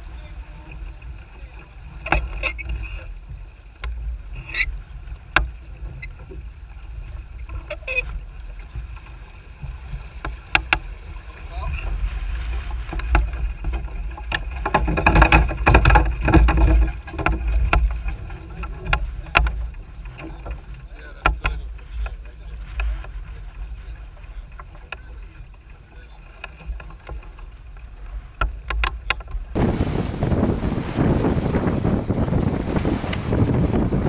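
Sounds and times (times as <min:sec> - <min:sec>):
wind and water rumble: 0:00.0 - 0:34.0
sharp clicks and knocks: 0:10.2 - 0:10.9, 0:12.9 - 0:20.6, 0:28.4 - 0:29.5.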